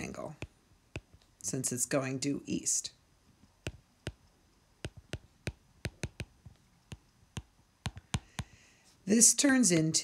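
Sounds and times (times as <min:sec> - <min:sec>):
stylus tapping on tablet screen: 0:00.0 - 0:01.3, 0:03.6 - 0:04.2, 0:04.8 - 0:08.7.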